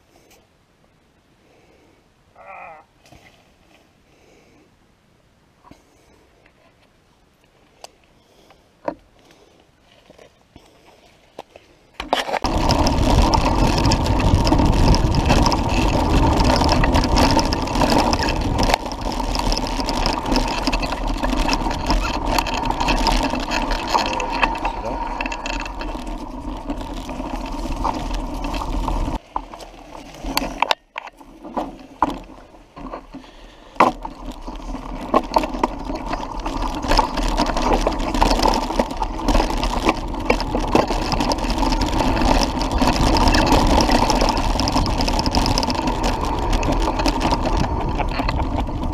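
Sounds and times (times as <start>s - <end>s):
bike tyre rumble on dirt: 9.1s - 48.9s
bike clicks: 11.4s - 48.9s
bike rattling over bumps: 12.0s - 48.9s
wind noise: 12.4s - 29.2s, 29.8s - 48.9s.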